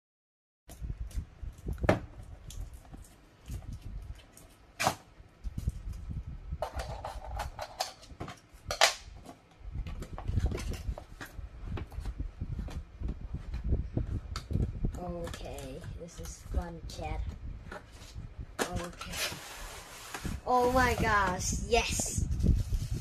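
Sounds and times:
cardboard scraping: 0:17.7 - 0:21.5.

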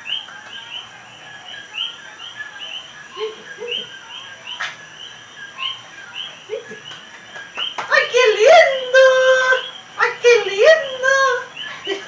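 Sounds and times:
frogs chirping: 0:00.0 - 0:12.0.

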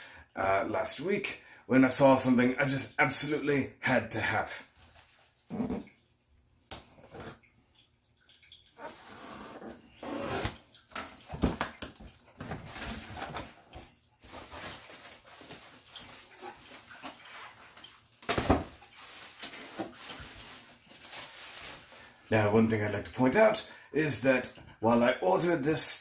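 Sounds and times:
packing material rustling: 0:08.8 - 0:22.3.

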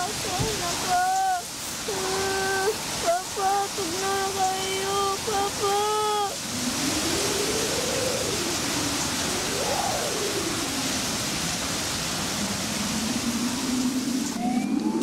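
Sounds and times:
heavy rain and rushing water: 0:00.0 - 0:15.0
rising and falling tone: 0:12.2 - 0:15.0.

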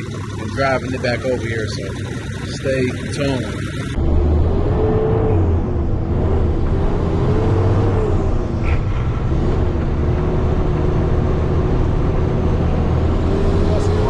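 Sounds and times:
diesel truck engine rumbling: 0:00.0 - 0:14.0.

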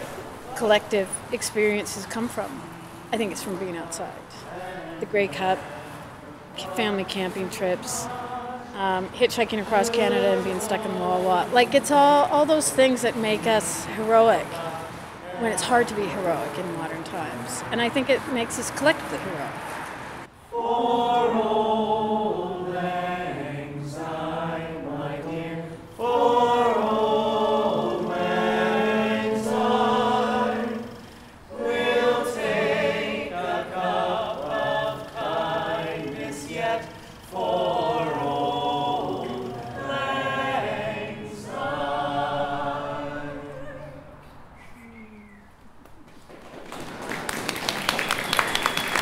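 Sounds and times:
group singing in harmony: 0:00.0 - 0:19.4, 0:20.4 - 0:44.4.

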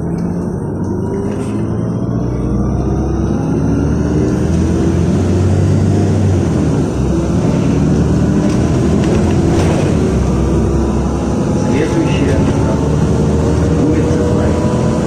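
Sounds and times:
bus engine humming: 0:00.0 - 0:15.0
tyre and road noise: 0:00.0 - 0:15.0.

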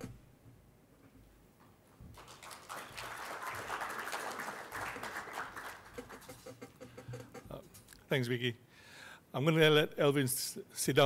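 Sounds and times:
audience applauding: 0:02.1 - 0:06.6.

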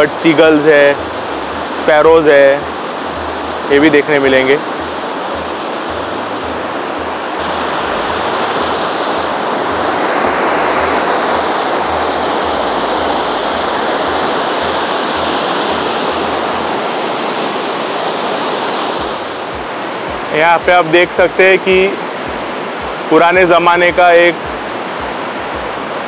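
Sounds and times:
waterfall roaring: 0:00.0 - 0:26.0.

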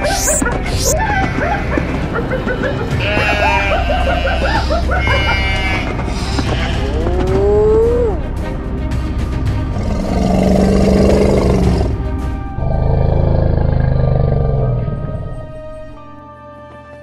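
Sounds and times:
background music: 0:00.0 - 0:17.0
animal cry rising and falling: 0:03.0 - 0:08.2
loud animal roar: 0:03.0 - 0:08.2, 0:09.7 - 0:12.0, 0:12.6 - 0:15.6.

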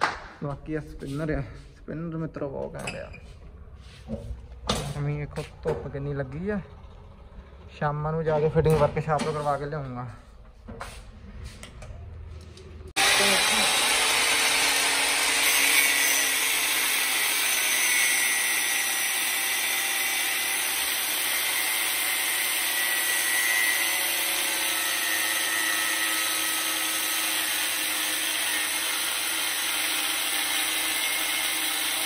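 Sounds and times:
power tool cutting metal: 0:13.0 - 0:32.0.

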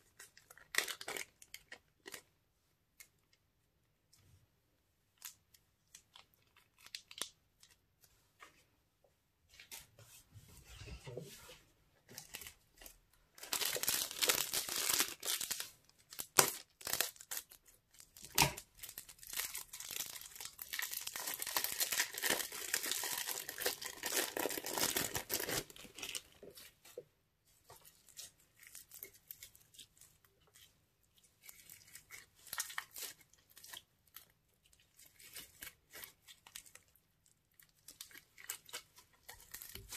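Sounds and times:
plastic bags crinkling and tearing: 0:00.1 - 0:02.3, 0:12.2 - 0:26.6, 0:31.4 - 0:39.9
crunchy slime crackling: 0:13.4 - 0:26.3.

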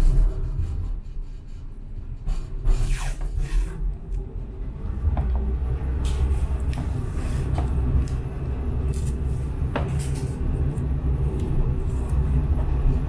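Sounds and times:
tram rumbling on rails: 0:00.0 - 0:13.0.

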